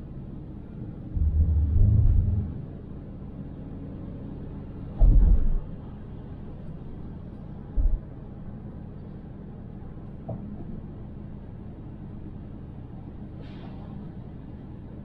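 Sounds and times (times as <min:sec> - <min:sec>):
car road and engine rumble: 0:00.0 - 0:15.0
loud low thump: 0:05.0 - 0:05.6.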